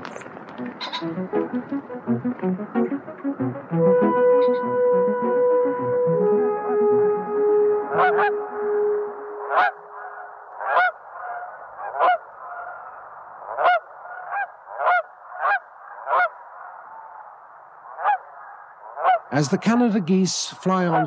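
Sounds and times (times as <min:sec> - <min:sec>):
geese honking: 0:00.0 - 0:21.0
brass-like music chord: 0:01.0 - 0:10.2.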